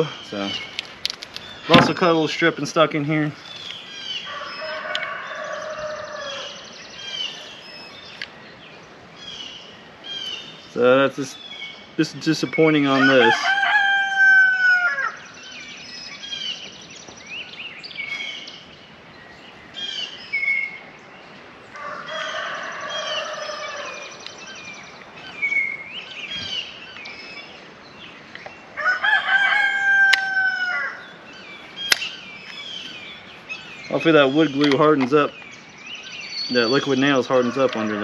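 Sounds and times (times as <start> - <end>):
rooster crowing: 4.2 - 6.6, 12.9 - 15.2, 21.7 - 24.2, 28.8 - 31.2
high bird chirps: 21.8 - 38.0
sharp clicks: 31.8 - 32.6, 34.6 - 35.5.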